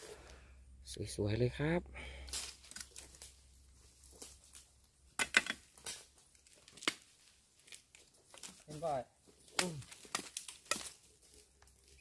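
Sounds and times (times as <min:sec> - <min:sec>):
dry leaves and twigs rustling: 0:02.0 - 0:12.0
sharp twig cracks: 0:02.3 - 0:03.4, 0:09.5 - 0:11.0.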